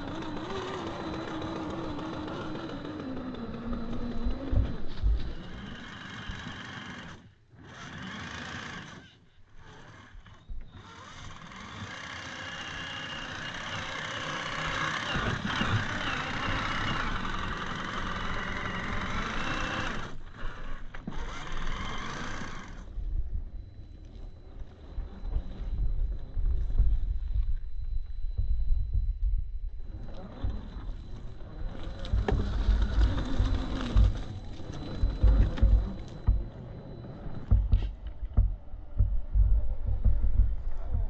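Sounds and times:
toy car electric motor running: 0:00.0 - 0:22.9, 0:29.9 - 0:36.4.

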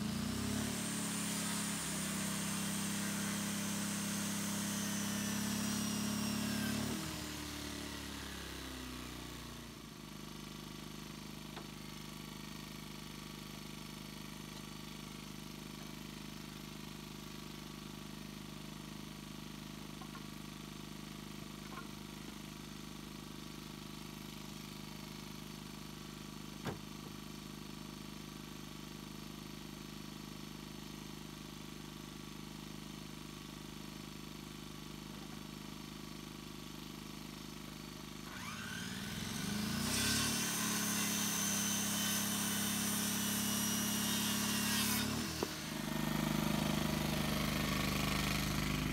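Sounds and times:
circular saw cutting wood: 0:00.0 - 0:09.8, 0:38.2 - 0:48.9.

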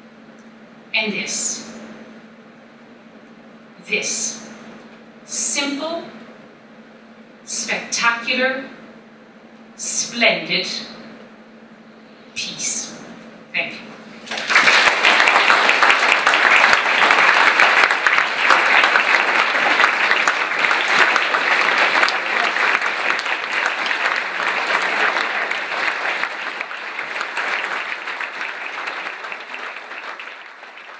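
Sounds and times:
large audience applauding: 0:14.2 - 0:30.9.

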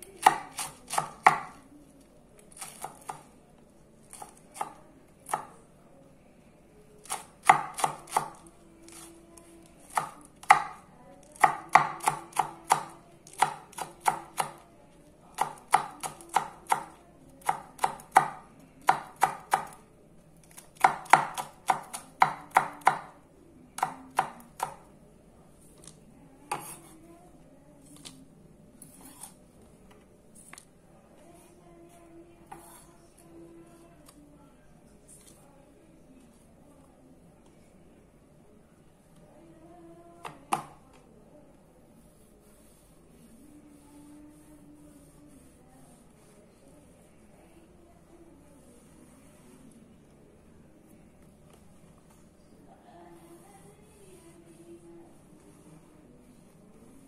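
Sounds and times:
knife chopping on wooden board: 0:00.2 - 0:01.6.

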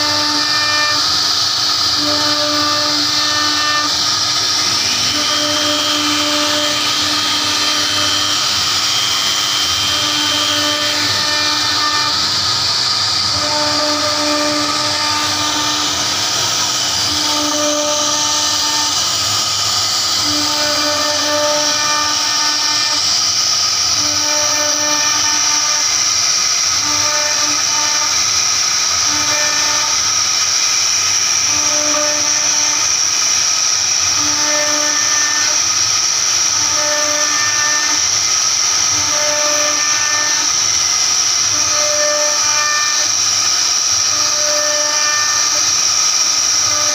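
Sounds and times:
low hum of moving carving head: 0:00.0 - 0:26.0
router spindle whining: 0:00.0 - 0:46.9.

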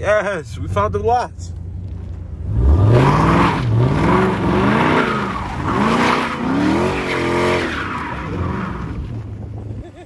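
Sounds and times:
car engine revving hard: 0:02.4 - 0:08.8
tyres squealing on asphalt: 0:03.0 - 0:09.2.

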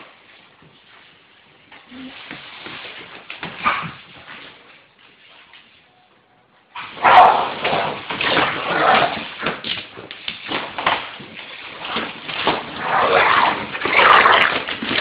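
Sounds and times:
dog growling and barking: 0:07.0 - 0:09.4, 0:12.7 - 0:14.7.

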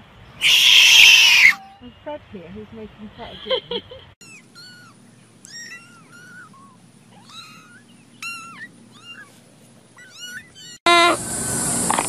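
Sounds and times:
kittens mewing: 0:00.4 - 0:01.8, 0:04.2 - 0:11.2.

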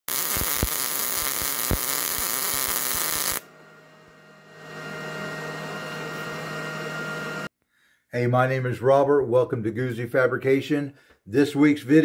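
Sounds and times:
welding arc hissing and crackling: 0:00.1 - 0:03.4
low steady hum: 0:03.4 - 0:07.5.

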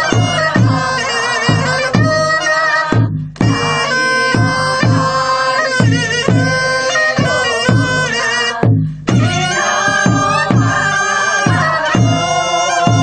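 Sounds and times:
double-reed wind instrument melody: 0:00.0 - 0:13.0
steady drum beat: 0:00.0 - 0:13.0.

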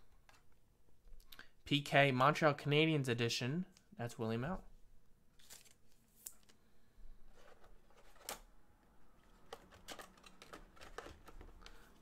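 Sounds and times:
faint clicks of objects handled: 0:05.4 - 0:06.6.

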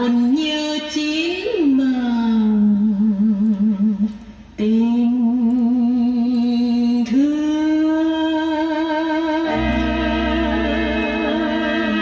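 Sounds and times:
band music from cassette: 0:09.0 - 0:12.0.

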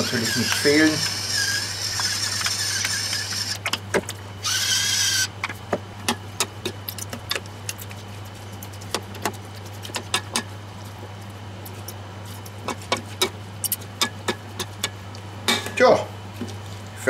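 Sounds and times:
electric spice mill grinding: 0:00.0 - 0:03.7, 0:04.4 - 0:05.4.

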